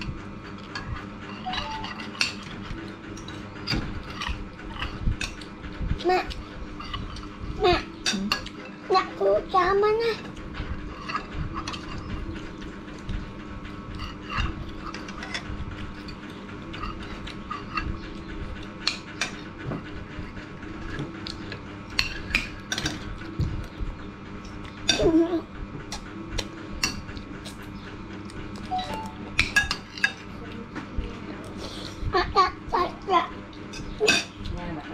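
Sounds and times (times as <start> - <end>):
steady low hum: 0.0 - 34.9
spoons clinking on ceramic bowls: 1.4 - 2.4
short pitched sound: 28.7 - 29.3.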